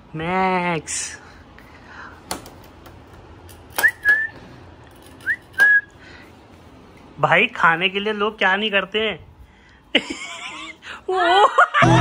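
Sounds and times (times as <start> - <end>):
person whistling: 3.8 - 4.4, 5.2 - 6.0.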